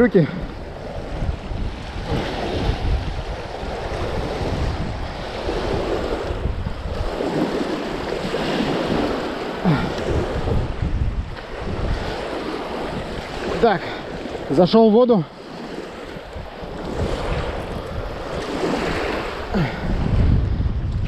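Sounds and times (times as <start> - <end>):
gusty wind buffeting microphone: 0.0 - 21.0
waves washing against shore: 0.0 - 21.0.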